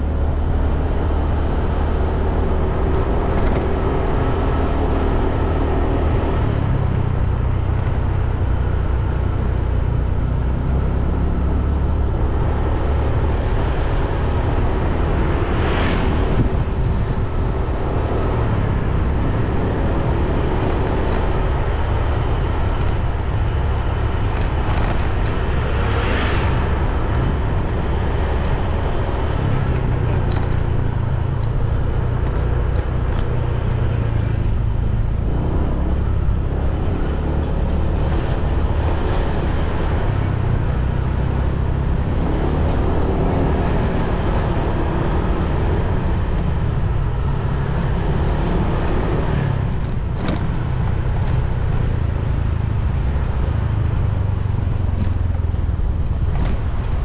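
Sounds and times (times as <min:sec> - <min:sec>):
motorbike engine and road noise: 0:00.0 - 0:57.0.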